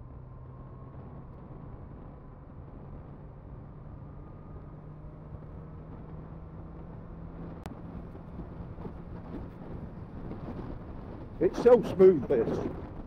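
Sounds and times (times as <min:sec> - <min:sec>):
wind noise on microphone: 0:05.3 - 0:13.0.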